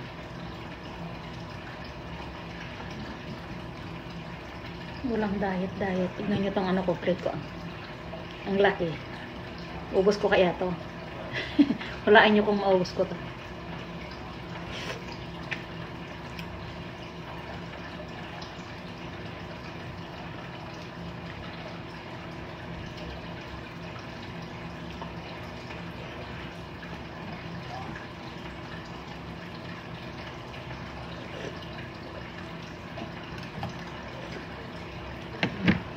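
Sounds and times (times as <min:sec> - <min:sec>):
steady background hum: 0:00.0 - 0:35.9
slurping soup: 0:31.2 - 0:31.7.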